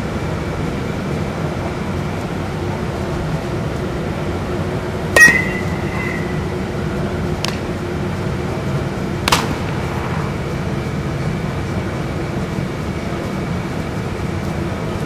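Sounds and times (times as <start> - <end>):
metal bat hitting baseball: 5.1 - 6.6, 9.2 - 10.2
ball fielded click: 5.2 - 6.5, 7.4 - 7.8, 9.2 - 10.3
low rumble: 9.2 - 12.1.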